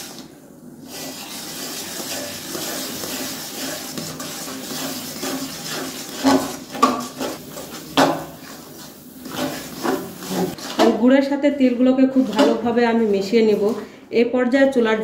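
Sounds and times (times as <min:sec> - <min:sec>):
sizzling scraping hiss of stirring: 0:00.0 - 0:11.0, 0:12.1 - 0:14.0.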